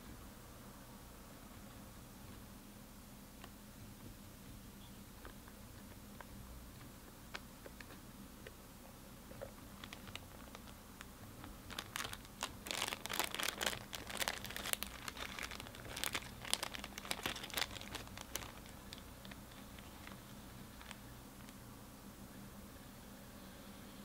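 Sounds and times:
plastic bag crinkling: 0:09.4 - 0:21.6.

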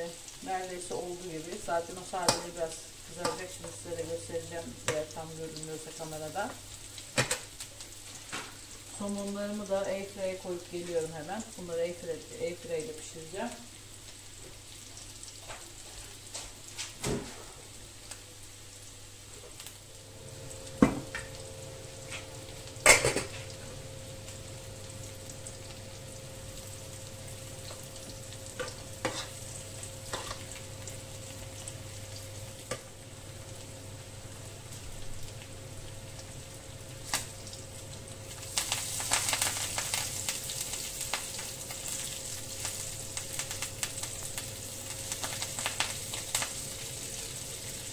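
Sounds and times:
food sizzling in a pan: 0:00.0 - 0:47.9
steady hum: 0:18.2 - 0:47.9.

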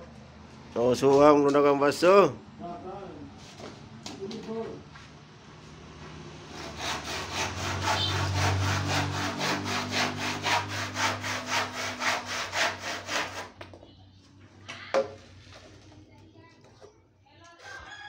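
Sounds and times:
hand saw cutting wood: 0:06.5 - 0:13.6.

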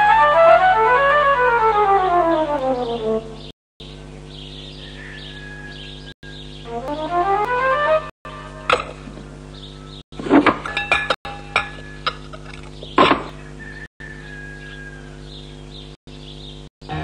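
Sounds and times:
china saucers clinking: 0:10.6 - 0:12.8.

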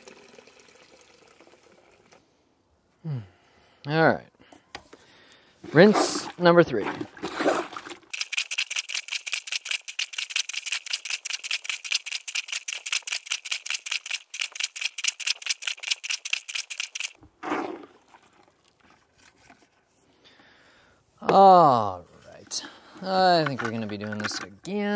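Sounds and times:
plunger washer sloshing water: 0:05.7 - 0:19.6.

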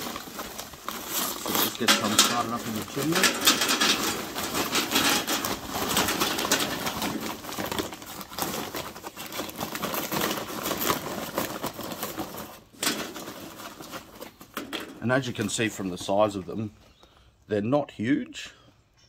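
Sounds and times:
charcoal briquettes clattering into metal: 0:00.0 - 0:16.6.

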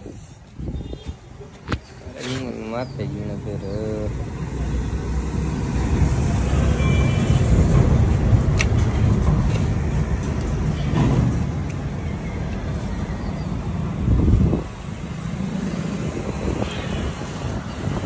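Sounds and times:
traffic noise: 0:00.0 - 0:18.0.

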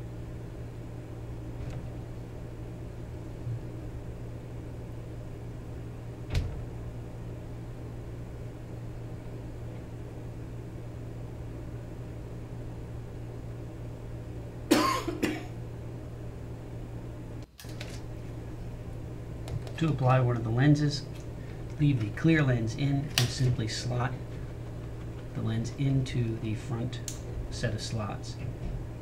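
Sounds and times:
steady low hum: 0:00.0 - 0:29.0
handling noise: 0:19.4 - 0:27.5.

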